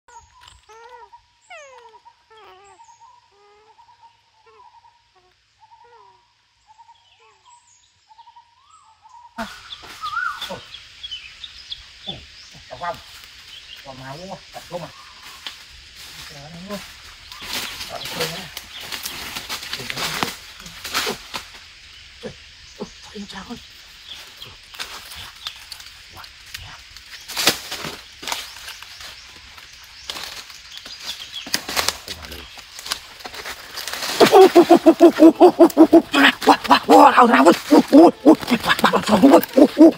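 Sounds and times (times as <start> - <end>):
bird wing flutters and rustles: 15.2 - 21.7, 24.2 - 35.2.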